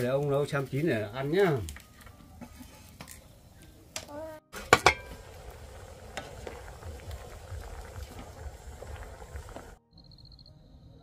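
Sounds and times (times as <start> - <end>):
porridge bubbling: 4.5 - 9.8.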